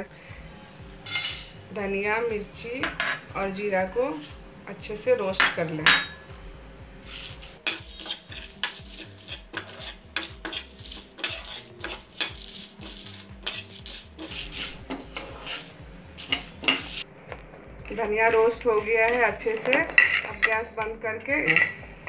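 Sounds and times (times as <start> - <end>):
spoon scraping frying pan: 7.1 - 17.1, 18.3 - 20.6, 21.4 - 21.8.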